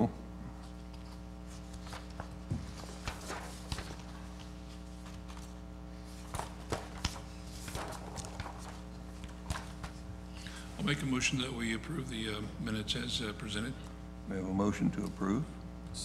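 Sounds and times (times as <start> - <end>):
steady electrical hum: 0.0 - 16.0
papers handled at a microphone: 0.6 - 11.5.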